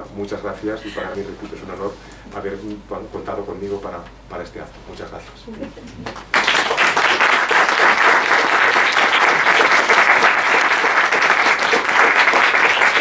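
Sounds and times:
audience applauding: 6.0 - 13.0.

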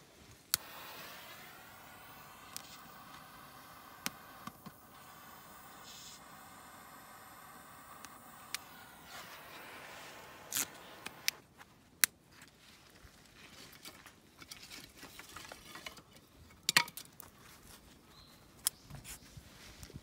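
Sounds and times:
faint hiss: 0.0 - 13.0
wood fire crackling: 0.2 - 12.1.

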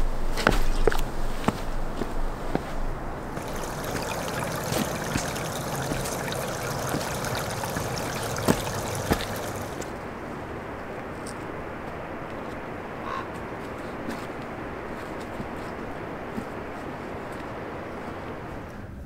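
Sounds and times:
stream water trickling: 3.2 - 10.1
footsteps on rock: 8.4 - 9.8.

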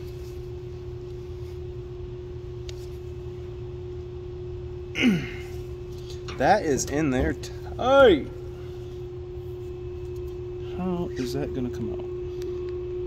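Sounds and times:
steady background hum: 0.0 - 13.0
man groaning: 5.0 - 5.5.

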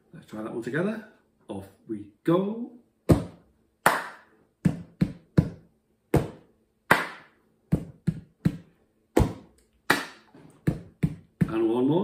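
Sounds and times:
hand clap: 3.1 - 5.6, 6.2 - 11.6.

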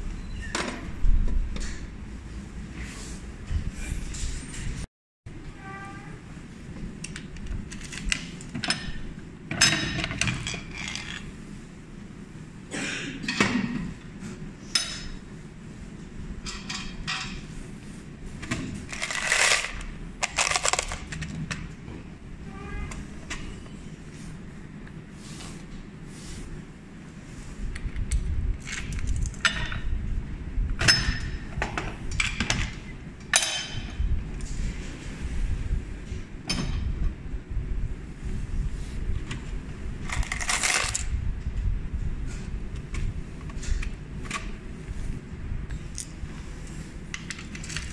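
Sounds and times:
vending machine parts clattering: 7.6 - 11.3.

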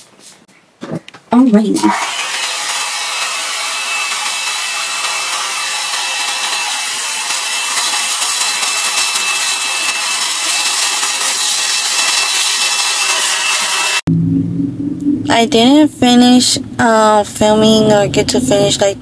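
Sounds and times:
blow-dryer brush air rushing: 1.8 - 14.0
high-pitched motor whine: 1.9 - 15.8.

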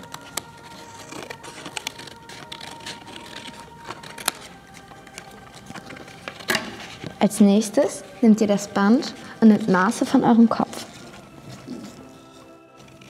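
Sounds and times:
scissors cutting card: 0.0 - 7.2.

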